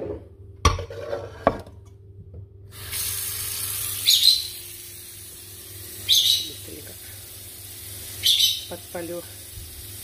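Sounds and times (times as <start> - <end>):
tap water running into pot: 2.7 - 10.0.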